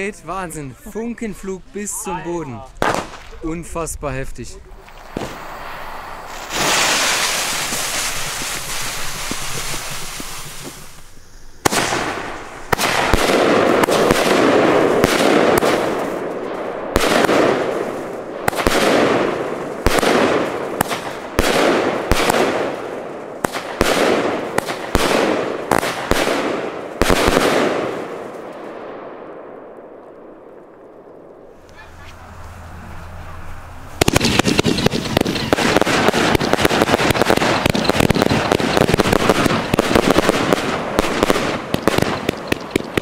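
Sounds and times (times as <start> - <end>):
firework bangs: 0.0 - 43.0
firework hissing: 4.6 - 16.2, 31.5 - 43.0
crackle of bursting shells: 34.0 - 43.0.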